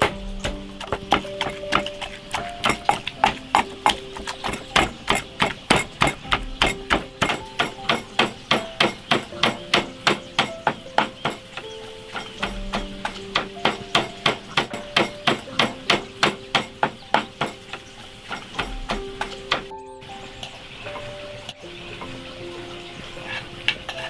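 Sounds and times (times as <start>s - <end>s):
pestle pounding in clay mortar: 0.0s - 11.6s.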